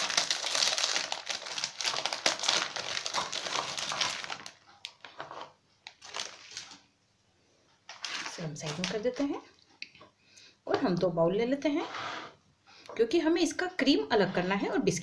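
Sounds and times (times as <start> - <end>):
plastic wrapper crinkling: 0.0 - 6.9, 7.9 - 9.3.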